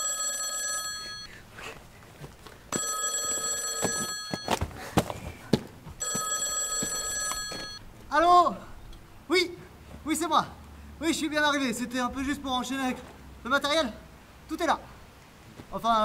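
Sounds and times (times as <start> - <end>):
telephone ringing: 0.0 - 1.3, 2.7 - 4.6, 6.0 - 7.8.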